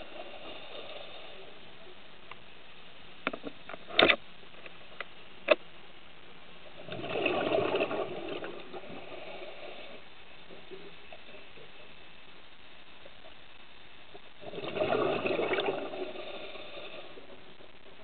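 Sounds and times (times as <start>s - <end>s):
steady hiss: 0.0s - 18.0s
underwater clicks and knocks: 3.2s - 5.6s
scuba regulator bubbles: 6.8s - 11.8s, 14.4s - 18.0s.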